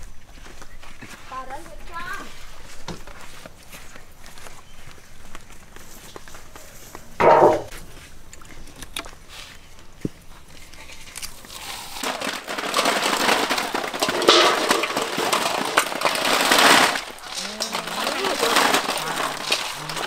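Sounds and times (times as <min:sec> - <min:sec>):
snail shells clattering in metal basins: 0:11.0 - 0:20.0.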